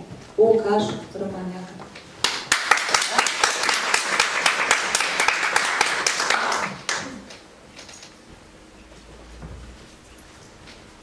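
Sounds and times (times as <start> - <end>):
audience applauding: 2.2 - 7.4.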